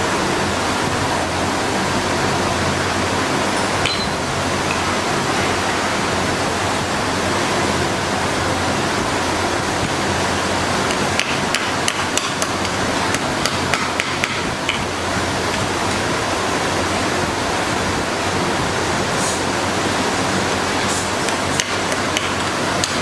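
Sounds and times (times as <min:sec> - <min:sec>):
loud steady rushing noise: 0:00.0 - 0:23.0
sharp metallic clicks and taps: 0:10.9 - 0:14.9, 0:21.3 - 0:23.0.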